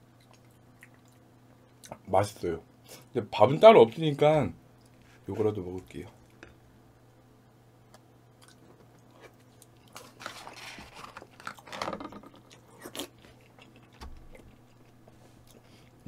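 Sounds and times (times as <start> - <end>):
person biting and chewing food: 7.9 - 15.9.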